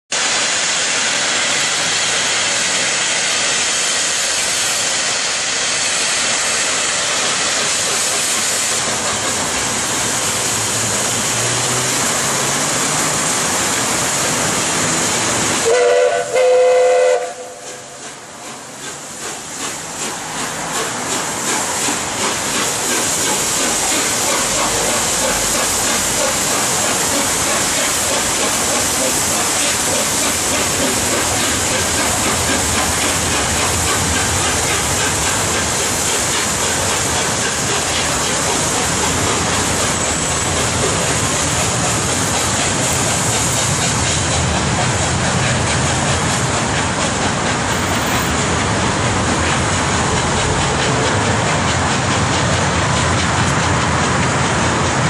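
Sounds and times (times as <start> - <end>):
steam hissing: 0.1 - 55.0
steam locomotive exhaust beats: 0.1 - 55.0
steam whistle blasts: 15.6 - 17.9.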